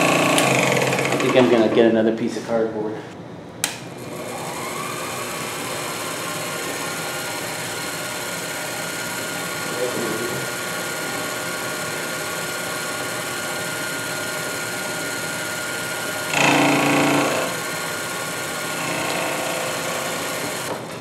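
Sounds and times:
loud rough cutting sound: 0:00.0 - 0:01.5, 0:16.2 - 0:17.9
milling machine motor humming: 0:00.0 - 0:01.8, 0:03.9 - 0:21.0.

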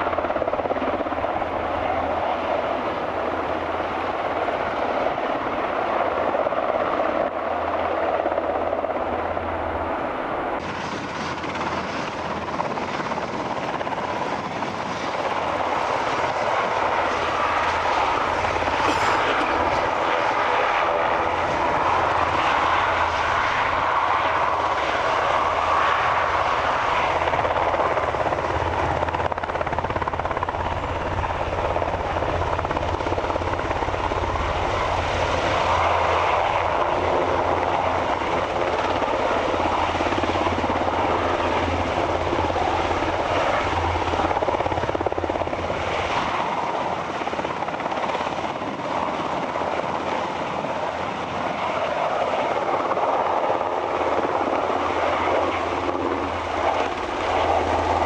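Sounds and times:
helicopter rotors and engines: 0:00.0 - 0:58.0.

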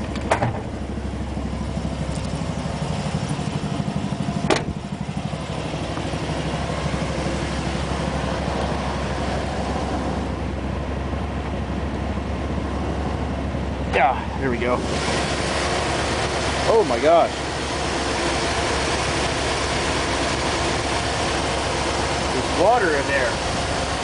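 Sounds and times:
car engine idling: 0:00.0 - 0:24.0
sharp engine knock: 0:04.4 - 0:04.8.

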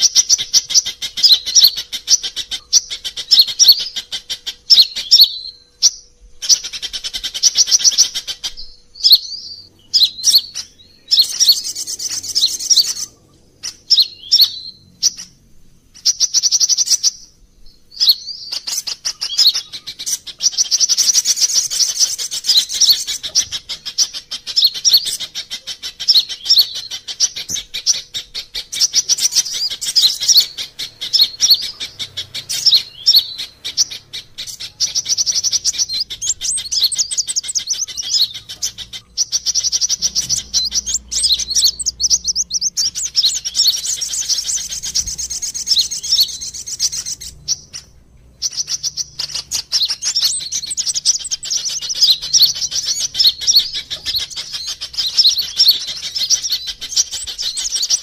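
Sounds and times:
sunbirds chirping and trilling: 0:00.0 - 0:58.0.

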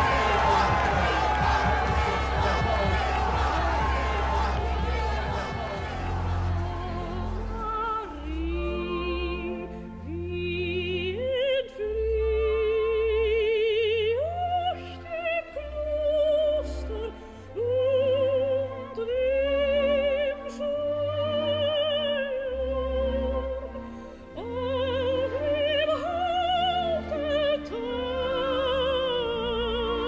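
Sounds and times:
operatic voice singing: 0:00.0 - 0:23.5.

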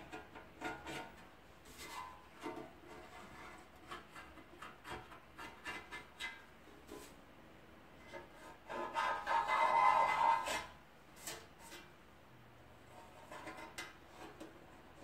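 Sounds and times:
hand scrubbing metal pan: 0:08.4 - 0:11.9.

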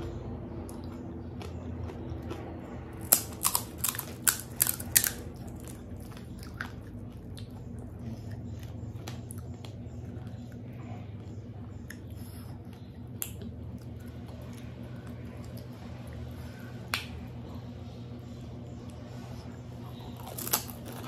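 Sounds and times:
steady low hum: 0:00.0 - 0:21.0
crisp shell cracking: 0:03.0 - 0:05.7, 0:20.2 - 0:21.0.

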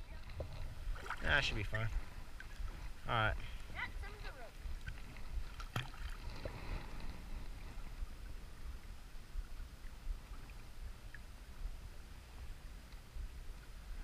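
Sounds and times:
water sloshing around wading people: 0:00.0 - 0:14.0.

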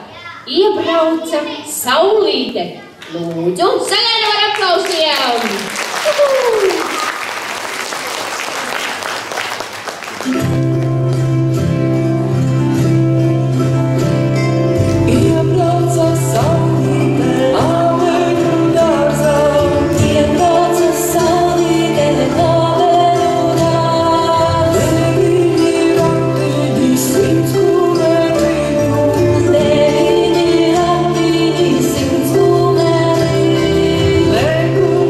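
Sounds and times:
folk dance music: 0:03.9 - 0:35.0
audience applause: 0:04.1 - 0:10.9
person singing: 0:14.9 - 0:35.0.

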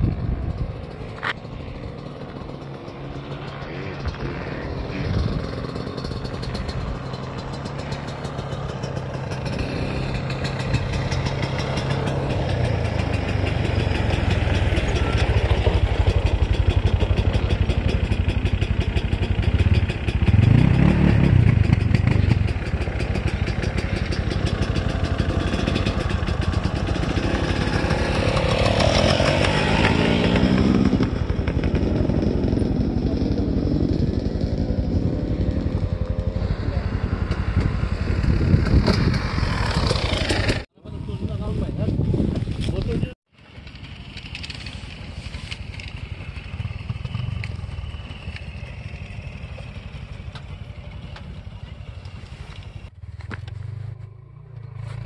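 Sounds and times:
dirt bike engine revving: 0:00.8 - 0:40.7.

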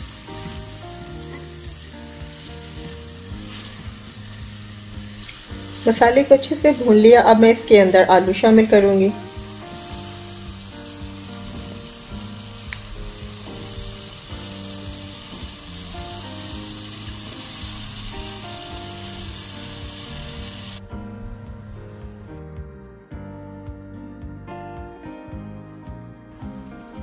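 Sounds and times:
food sizzling in a pot: 0:00.0 - 0:20.8, 0:26.4 - 0:27.0
soft background music: 0:00.0 - 0:27.0.

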